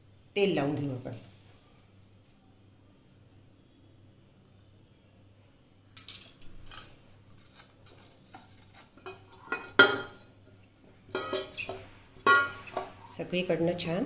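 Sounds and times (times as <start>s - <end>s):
metal pan knocking on stone countertop: 9.1s - 10.2s, 11.1s - 12.9s
metallic clatters and rings: 11.2s - 12.9s.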